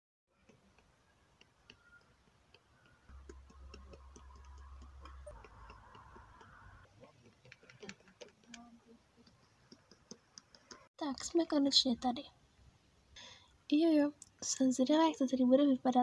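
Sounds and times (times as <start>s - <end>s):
toy feet tapping on stone: 0.5s - 8.6s, 9.2s - 10.9s.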